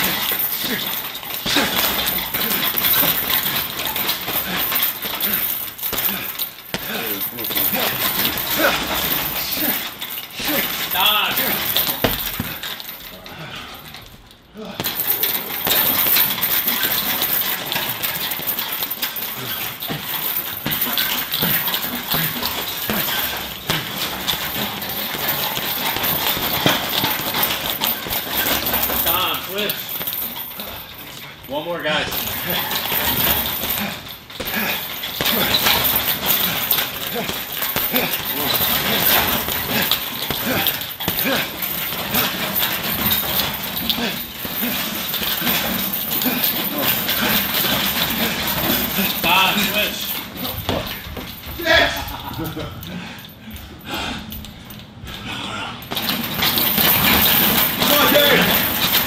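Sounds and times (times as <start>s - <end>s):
grunts of effort: 0.0s - 18.1s, 19.0s - 56.3s, 57.1s - 59.0s
medicine ball thudding on heavy bag: 10.4s - 12.6s, 20.6s - 29.3s.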